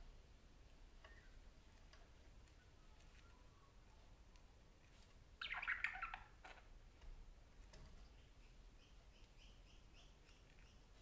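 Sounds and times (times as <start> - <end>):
parakeet chirping: 5.3 - 6.7, 8.1 - 11.0.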